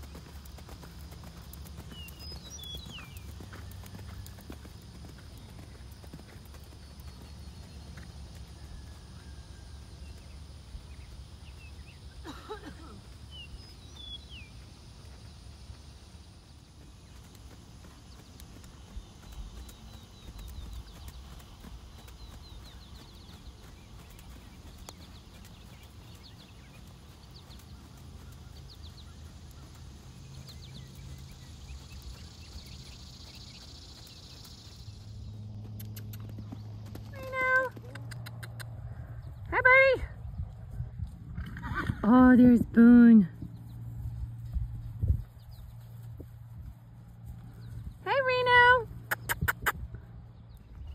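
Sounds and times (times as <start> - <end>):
bird chirps: 0.0 - 14.8, 16.6 - 38.6
steady low hum: 0.0 - 48.1
steady low rumble: 0.0 - 48.1.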